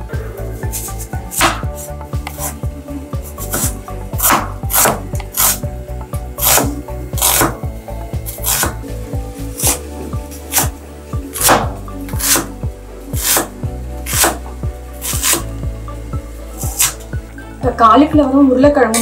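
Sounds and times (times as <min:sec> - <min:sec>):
knife slicing onion on board: 0:00.6 - 0:02.6, 0:03.2 - 0:05.6, 0:06.4 - 0:07.6, 0:08.3 - 0:08.9, 0:09.6 - 0:10.7, 0:11.3 - 0:12.6, 0:13.2 - 0:14.4, 0:15.0 - 0:15.5, 0:16.6 - 0:17.0.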